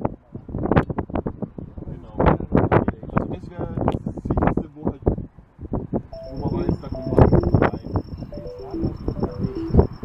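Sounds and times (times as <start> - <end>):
wind buffeting microphone: 0.0 - 10.0.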